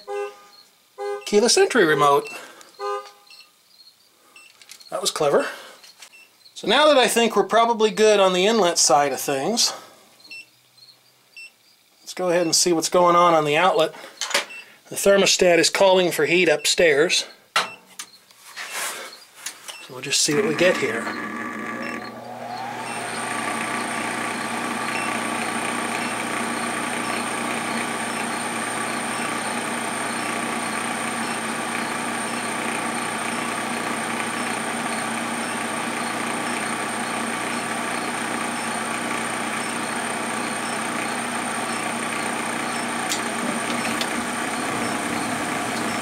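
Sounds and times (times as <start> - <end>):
furnace motor whining: 20.0 - 46.0
furnace blower noise: 20.2 - 46.0.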